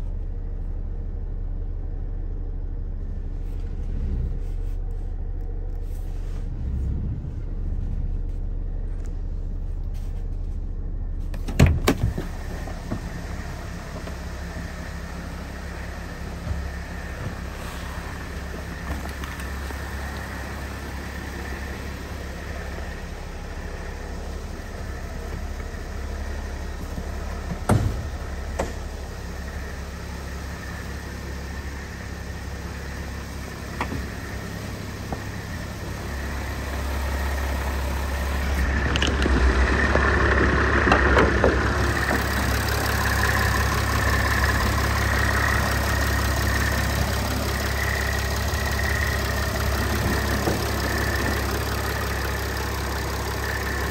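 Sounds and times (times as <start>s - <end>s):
diesel engine idling: 0.0s - 53.9s.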